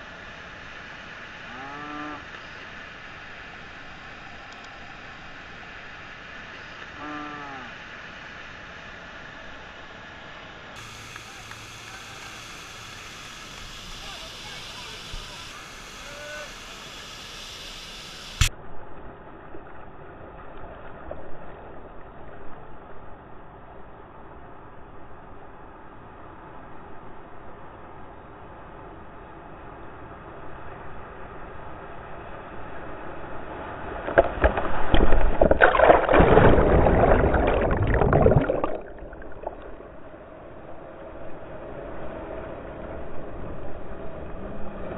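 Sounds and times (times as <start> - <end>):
water crashing over kayak: 34.0 - 39.9
rushing whitewater: 34.6 - 40.1.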